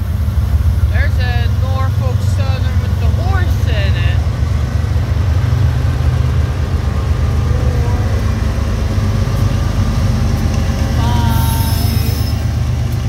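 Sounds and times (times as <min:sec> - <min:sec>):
freight locomotives passing: 0:00.0 - 0:13.0.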